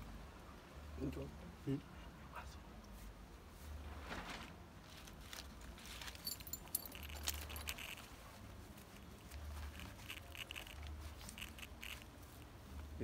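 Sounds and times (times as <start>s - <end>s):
padlocks and keys jangling: 5.9s - 8.2s, 9.6s - 12.0s.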